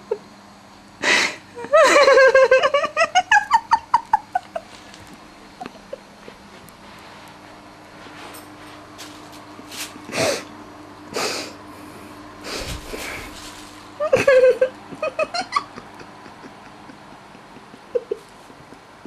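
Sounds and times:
plastic bag crackling: 12.6 - 14.0.

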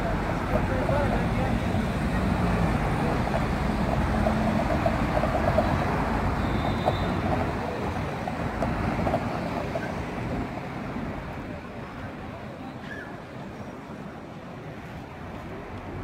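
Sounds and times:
cars driving past: 0.0 - 12.6.

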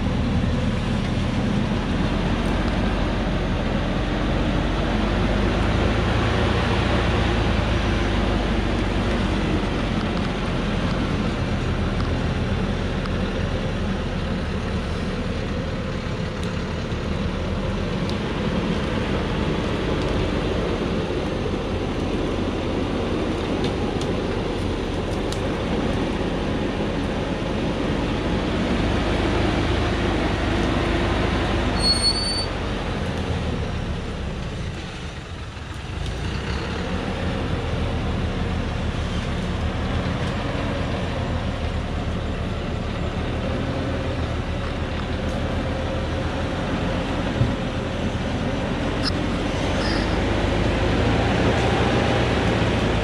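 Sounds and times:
truck diesel engine running: 0.0 - 53.0
brief high squeak: 31.8 - 32.6, 49.0 - 50.2.

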